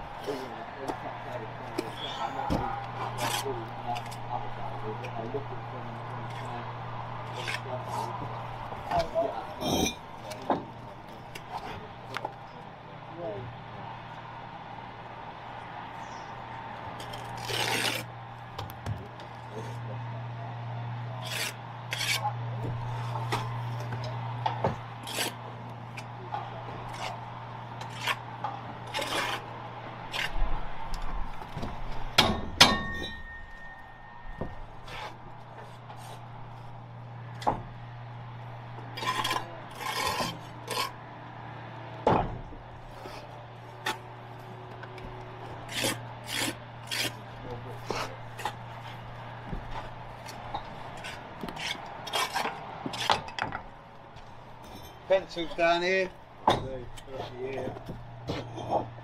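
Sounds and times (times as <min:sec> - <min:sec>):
trowel scraping and tapping bricks: 0:21.2 - 0:22.3, 0:39.0 - 0:41.0, 0:45.6 - 0:47.2, 0:47.8 - 0:53.7.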